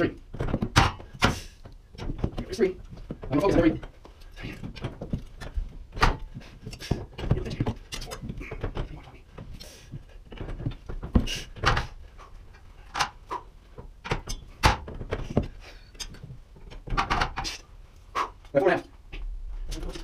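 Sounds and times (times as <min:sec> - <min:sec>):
metal bars knocking and clanking: 0:13.9 - 0:17.5.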